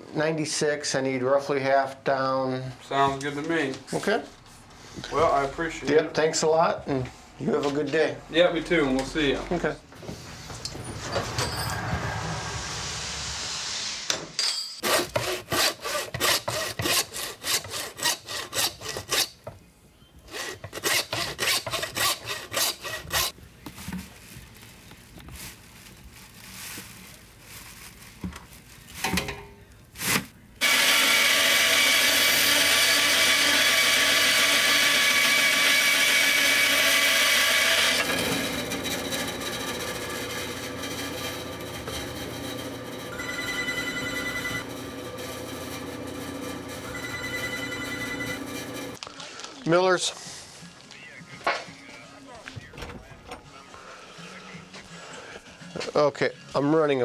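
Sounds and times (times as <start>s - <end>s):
hand saw strokes: 14.8s - 19.4s, 20.3s - 23.4s, 30.6s - 43.2s, 44.6s - 47.4s.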